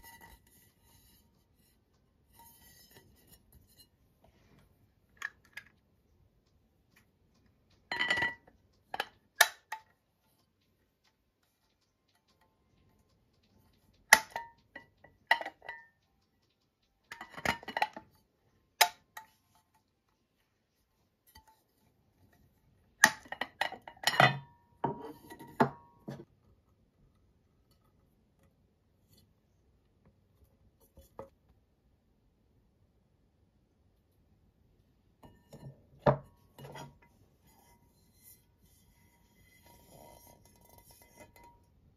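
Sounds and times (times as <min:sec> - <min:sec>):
pans and lid clinking: 0:07.9 - 0:09.8.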